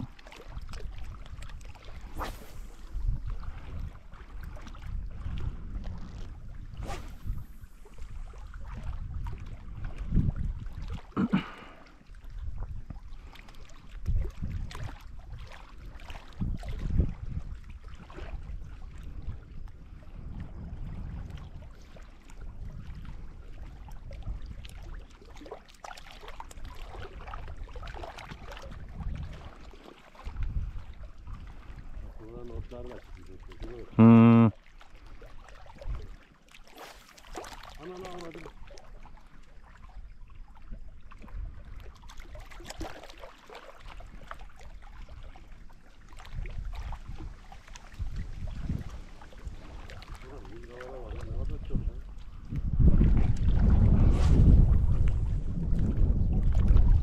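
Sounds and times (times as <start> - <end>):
wind buffeting microphone: 0.0 - 11.6, 12.3 - 25.1, 26.6 - 32.9, 46.2 - 57.0
small waves lapping on rocks: 21.3 - 34.0, 34.6 - 56.1.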